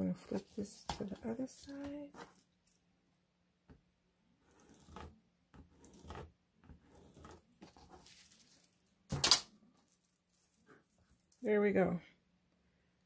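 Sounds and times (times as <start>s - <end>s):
pencil drawing on paper: 4.4s - 8.0s
plastic ruler sliding on paper: 4.4s - 8.2s
paper rustling and scraping: 4.4s - 11.4s.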